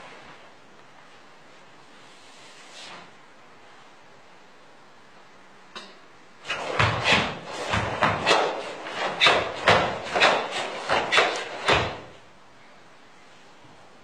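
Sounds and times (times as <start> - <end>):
bare feet thudding on floor: 6.5 - 12.2.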